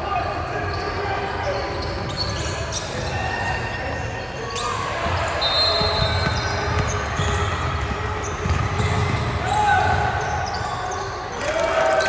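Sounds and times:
sneaker squeaks: 0:00.0 - 0:11.4
basketball bouncing: 0:05.8 - 0:10.0.

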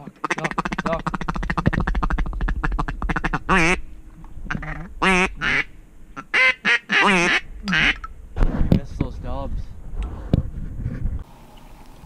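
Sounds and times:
duck call quacks: 0:00.2 - 0:03.8, 0:04.5 - 0:08.0.

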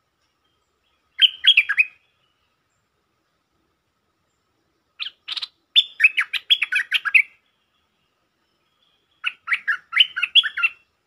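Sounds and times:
bulbul chattering song: 0:01.0 - 0:02.2, 0:05.0 - 0:07.9, 0:08.7 - 0:11.0.

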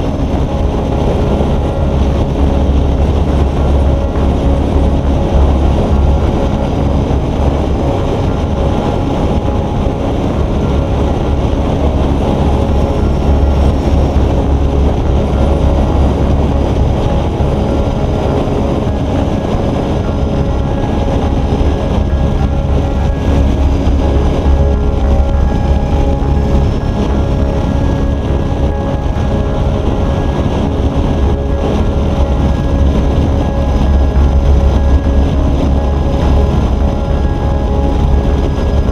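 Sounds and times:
motorcycle engine: 0:00.0 - 0:38.9
wind buffeting microphone: 0:00.0 - 0:38.9.

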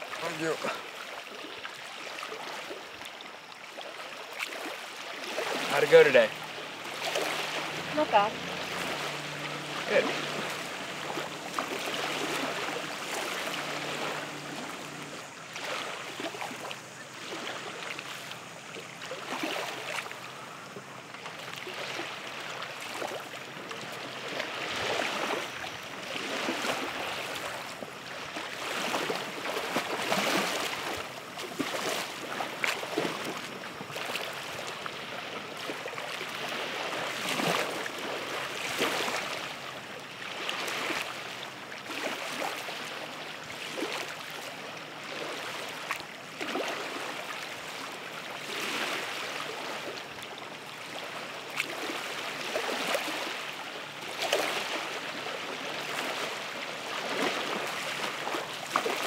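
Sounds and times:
water rushing and splashing: 0:00.0 - 0:59.0
low hum: 0:06.3 - 0:15.4.

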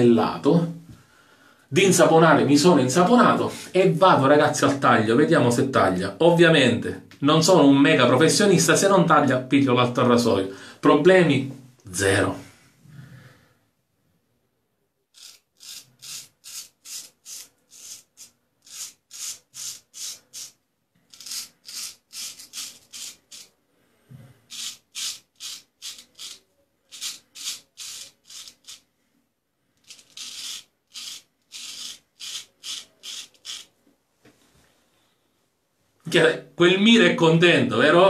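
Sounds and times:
razor scraping stubble: 0:15.1 - 0:23.5, 0:24.5 - 0:28.8, 0:29.8 - 0:33.7.

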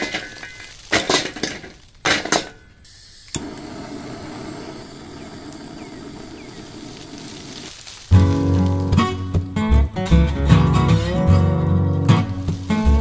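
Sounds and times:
charcoal clattering into metal bowl: 0:00.0 - 0:02.5
blowtorch flame hissing: 0:02.9 - 0:09.0
blowtorch ignition click: 0:03.2 - 0:07.6.

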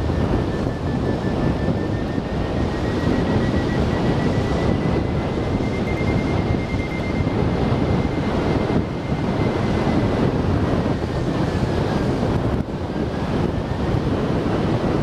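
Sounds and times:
loud wind noise: 0:00.0 - 0:15.0
faint thin high tone: 0:01.5 - 0:09.3.

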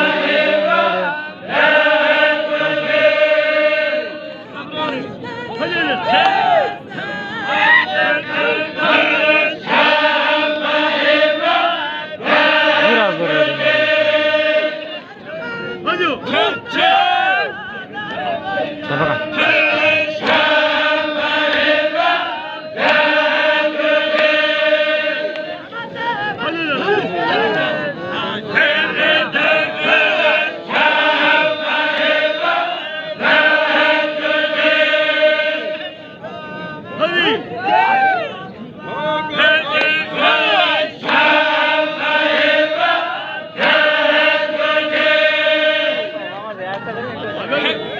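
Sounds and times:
men chanting in unison: 0:00.0 - 0:15.2, 0:16.0 - 0:47.9.

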